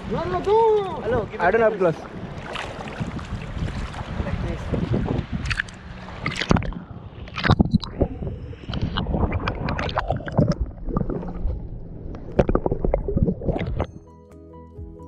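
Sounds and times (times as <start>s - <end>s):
water splashes: 0.0s - 13.9s
water sloshing and gurgling: 0.0s - 14.0s
muffled low rumble: 3.0s - 13.9s.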